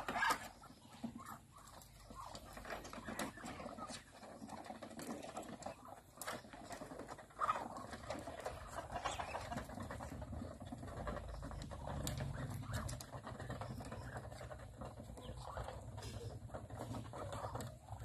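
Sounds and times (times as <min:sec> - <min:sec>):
birds pecking grain: 0:00.0 - 0:18.0
soft bird calls: 0:10.8 - 0:18.0.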